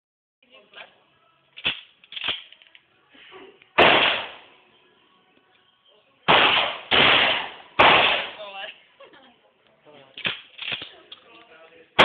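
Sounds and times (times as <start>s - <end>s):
shotgun blasts: 3.8s - 4.4s, 6.3s - 8.4s.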